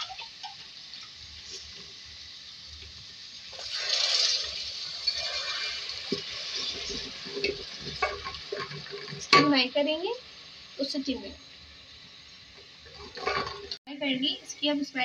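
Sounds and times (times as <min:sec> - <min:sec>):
water poured into hot oil: 0:00.0 - 0:09.4
masala sizzling in hot oil: 0:00.0 - 0:15.0
wooden spoon stirring: 0:05.1 - 0:09.3.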